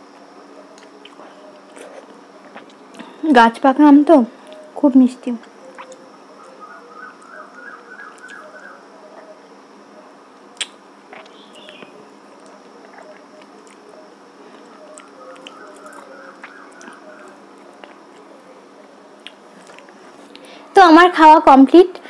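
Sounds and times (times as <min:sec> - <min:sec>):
person eating wet mouth sounds: 0:12.4 - 0:18.4.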